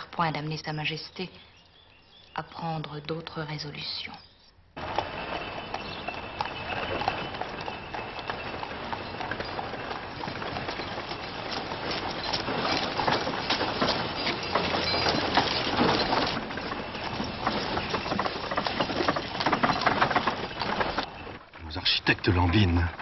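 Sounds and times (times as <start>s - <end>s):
coach wheels rattling: 4.8s - 23.0s
horse hooves clopping: 4.8s - 23.0s.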